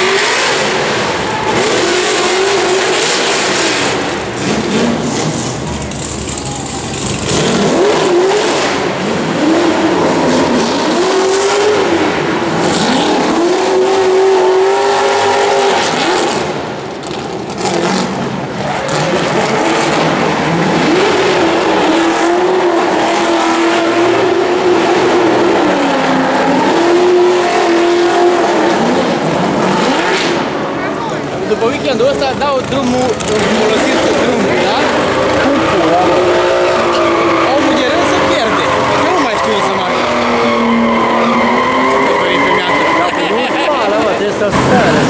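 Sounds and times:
car engines revving hard: 0:00.0 - 0:45.0
tyres screeching: 0:30.9 - 0:45.0.

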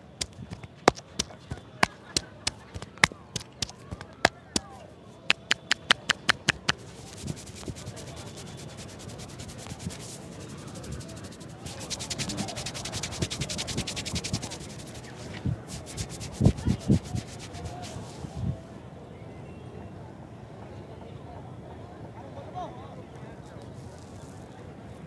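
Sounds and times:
fingers rubbing through hair: 0:00.0 - 0:04.6, 0:05.3 - 0:18.4
thumps: 0:00.0 - 0:04.7, 0:05.3 - 0:18.0
palms tapping on head: 0:00.1 - 0:04.7, 0:05.3 - 0:18.0.

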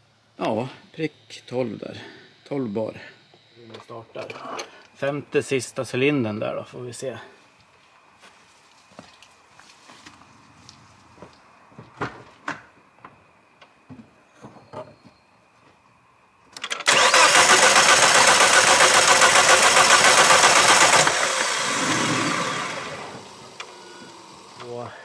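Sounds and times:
engine cranking on starter: 0:16.6 - 0:24.8.

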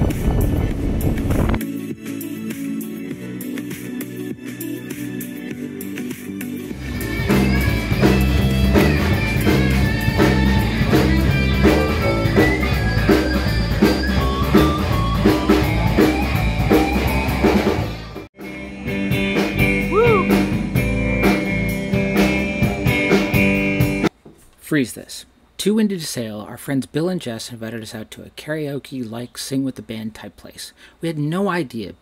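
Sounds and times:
band music with guitar and drums: 0:00.0 - 0:24.1.

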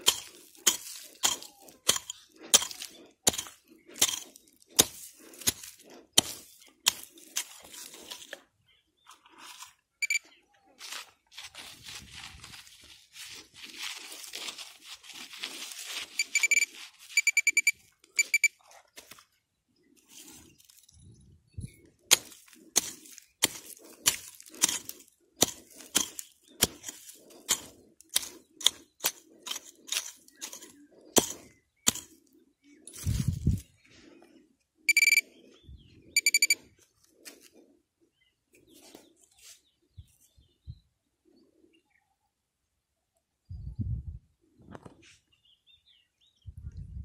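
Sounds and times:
tool chopping into ground: 0:00.0 - 0:08.4, 0:22.1 - 0:32.2
digging tool scraping dry soil: 0:00.0 - 0:10.2, 0:10.8 - 0:20.9, 0:21.7 - 0:34.2
metal detector beeping: 0:10.0 - 0:10.4, 0:16.0 - 0:18.6, 0:34.9 - 0:35.3, 0:36.1 - 0:36.7.

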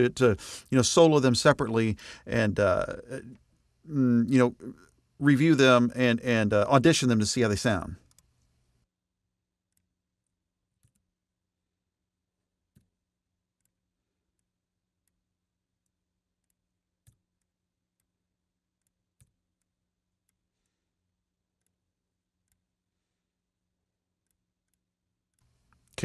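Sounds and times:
faint low hum: 0:00.0 - 0:08.0
computer mouse and keyboard clicks: 0:08.0 - 0:08.5, 0:10.8 - 0:11.1.

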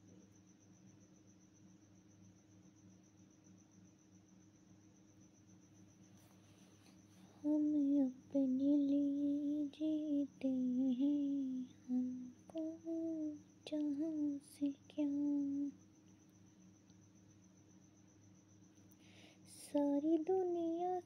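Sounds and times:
faint high-pitched whine: 0:00.0 - 0:21.0
woman humming a melody: 0:07.3 - 0:15.8, 0:19.5 - 0:21.0.

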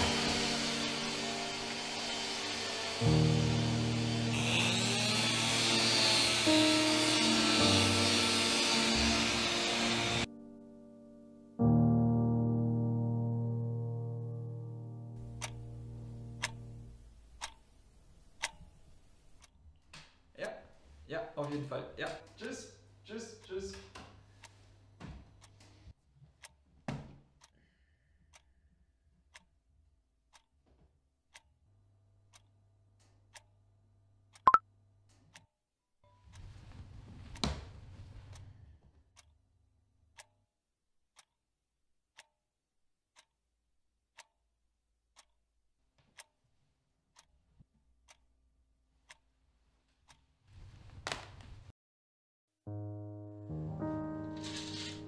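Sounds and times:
clock ticking faintly: 0:15.1 - 0:17.7, 0:18.4 - 0:18.8, 0:43.2 - 0:43.4.

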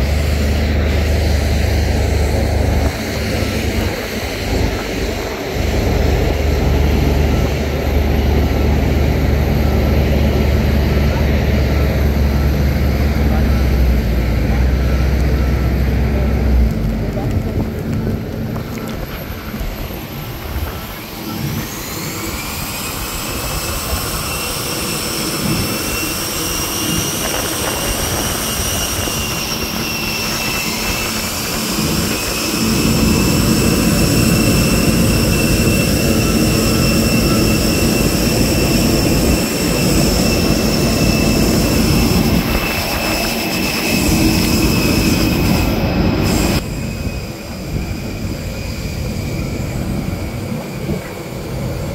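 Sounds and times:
low rumble: 0:00.0 - 0:23.2
jet turbine whine: 0:00.0 - 0:51.9
wind buffeting microphone: 0:00.0 - 0:51.9.

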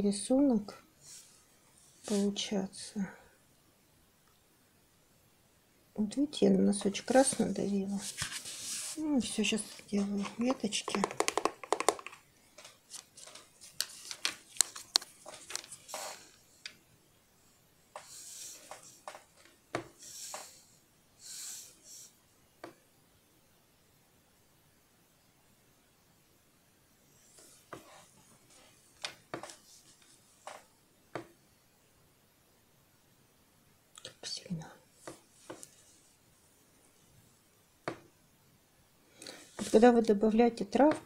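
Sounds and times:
paintbrush taps and scrapes on paper: 0:06.8 - 0:16.2
painting tools clicking on table: 0:10.5 - 0:12.2.

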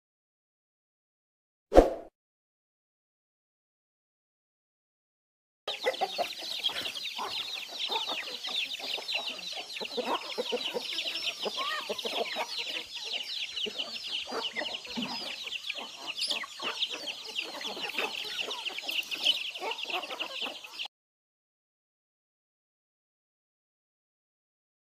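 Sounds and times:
chicks peeping: 0:05.7 - 0:20.9
hens clucking: 0:05.7 - 0:20.9.

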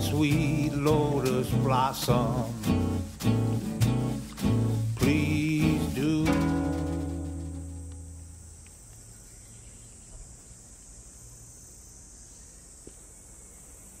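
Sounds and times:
acoustic guitar chord: 0:00.0 - 0:08.4
faint high-pitched hiss: 0:00.0 - 0:14.0.

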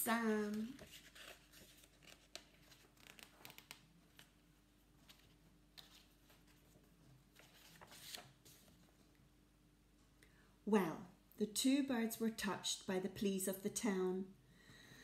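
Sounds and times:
faint room hum: 0:00.0 - 0:15.0
book pages turning: 0:00.1 - 0:09.1.

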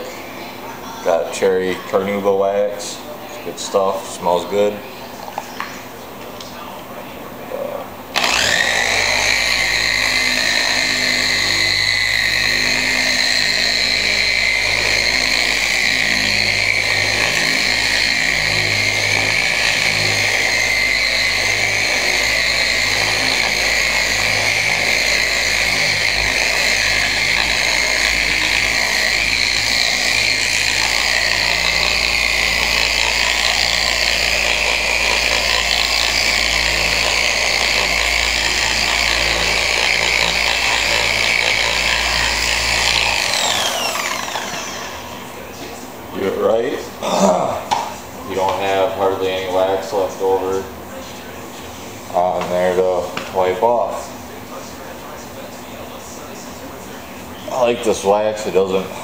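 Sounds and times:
electric orbital polisher whining: 0:08.1 - 0:46.4, 0:48.3 - 0:50.5.

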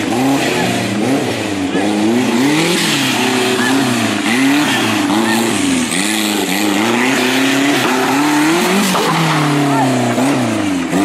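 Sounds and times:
buggy engine revving: 0:00.0 - 0:11.0.

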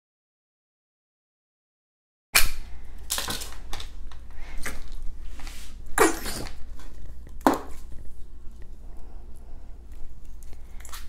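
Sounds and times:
putty squeezing out air bursts: 0:06.0 - 0:06.6.

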